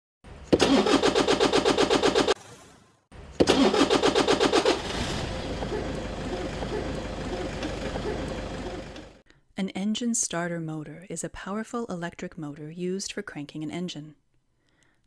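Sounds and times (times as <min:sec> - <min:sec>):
starter motor cranking: 0:00.5 - 0:02.4, 0:03.4 - 0:09.2
car engine idling: 0:03.5 - 0:09.2.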